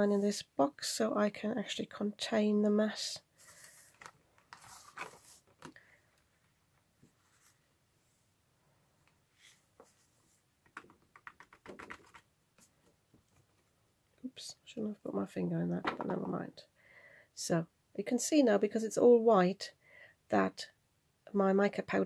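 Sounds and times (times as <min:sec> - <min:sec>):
soft rustles and light taps: 0:09.1 - 0:13.7.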